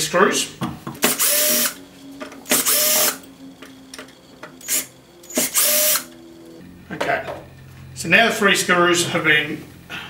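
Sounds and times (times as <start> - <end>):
cordless drill whirring: 1.0 - 1.8, 2.5 - 3.3, 4.6 - 6.2.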